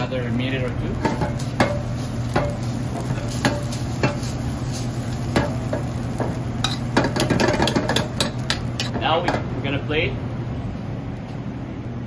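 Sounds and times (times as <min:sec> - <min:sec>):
gas burner hiss: 0:00.0 - 0:09.1
utensil clinking against wok: 0:01.0 - 0:09.5.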